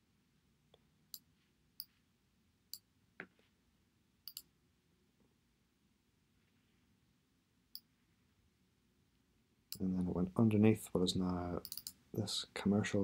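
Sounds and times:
computer mouse clicking: 4.3s - 4.5s, 11.6s - 12.0s.

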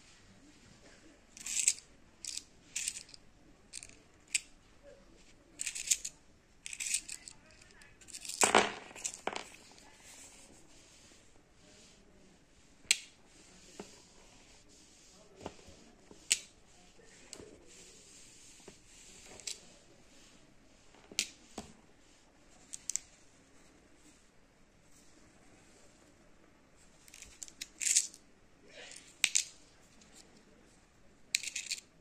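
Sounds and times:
steel screws clicking onto coin: 1.4s - 4.5s, 5.6s - 7.3s, 8.1s - 9.4s, 31.4s - 31.9s.

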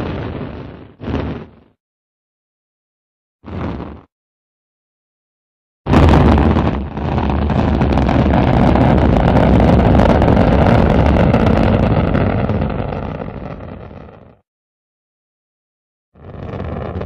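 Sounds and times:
rocket engine rumble: 0.0s - 1.6s, 5.9s - 14.4s, 16.2s - 17.0s.

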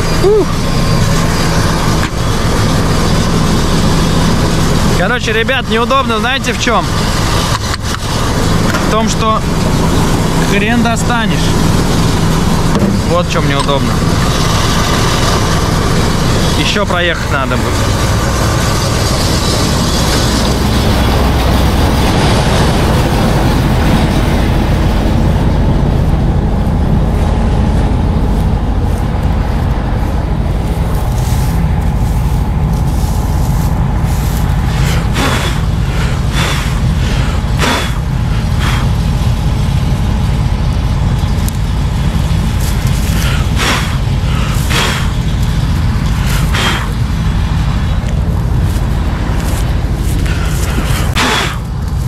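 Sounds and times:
combine harvester engine drone: 0.0s - 52.0s.

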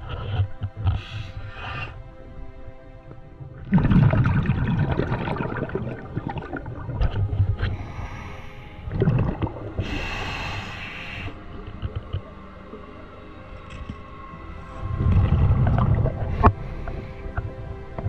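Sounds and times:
hissing inhale through regulator: 0.0s - 2.0s, 4.9s - 12.1s, 14.9s - 17.8s
exhaled bubbles rumbling: 3.1s - 18.0s.

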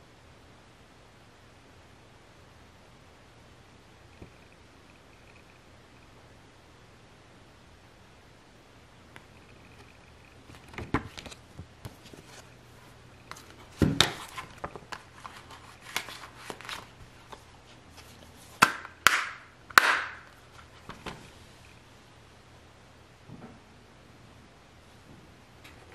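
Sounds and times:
paper and plastic case handling: 13.3s - 18.7s.

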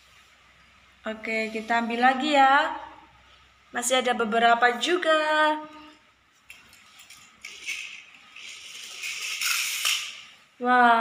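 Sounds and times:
toy car wheels rattling on tiles: 6.8s - 10.3s.

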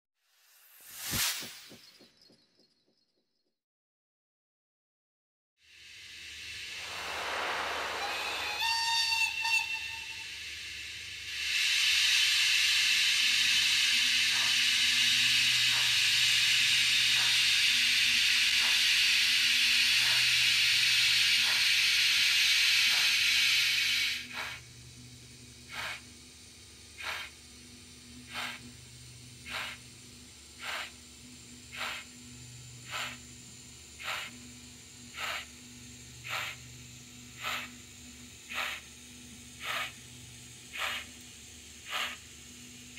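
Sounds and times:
loud hiss of steam: 5.7s - 42.9s
steam exhaust chuffs: 6.1s - 42.9s
model locomotive whistle: 7.4s - 11.0s.

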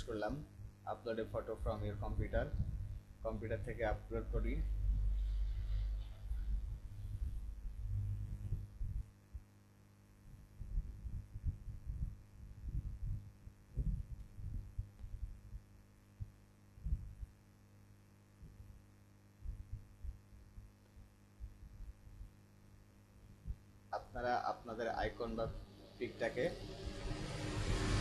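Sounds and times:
soft low thumps: 0.0s - 9.6s, 10.2s - 17.4s, 19.4s - 22.4s, 23.2s - 23.7s
low electrical hum: 0.0s - 28.0s.

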